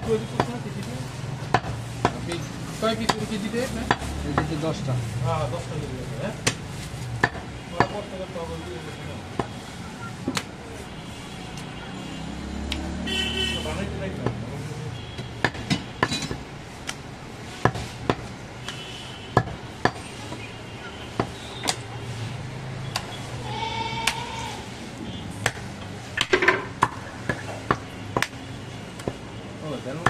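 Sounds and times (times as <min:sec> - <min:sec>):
knife chopping meat and bone: 0:01.4 - 0:02.4, 0:03.0 - 0:04.6, 0:15.4 - 0:17.0, 0:22.8 - 0:23.2.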